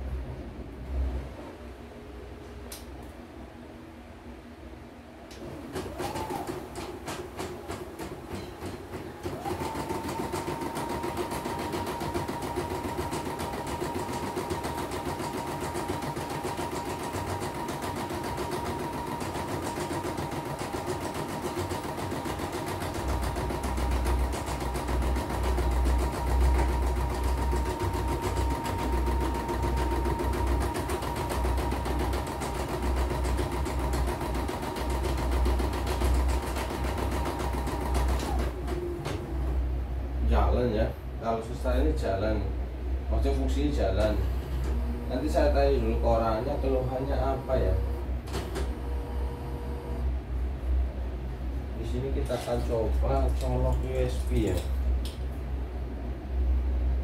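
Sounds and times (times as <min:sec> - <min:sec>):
embroidery machine motor whine: 0:23.0 - 0:34.5, 0:43.3 - 0:50.2.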